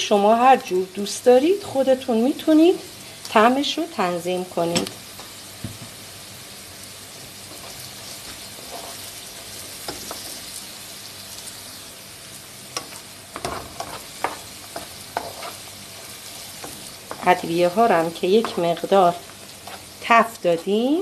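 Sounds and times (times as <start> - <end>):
vegetables sizzling in a pan: 0.0 - 21.0
utensil scraping a pan: 7.5 - 9.2, 12.8 - 17.4, 18.3 - 20.8.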